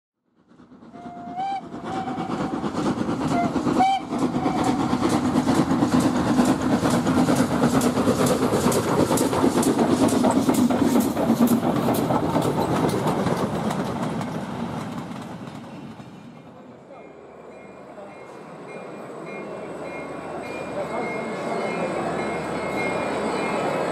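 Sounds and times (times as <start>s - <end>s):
steam locomotive running: 0.3s - 23.9s
steam whistle toots: 0.9s - 2.6s, 3.3s - 4.8s.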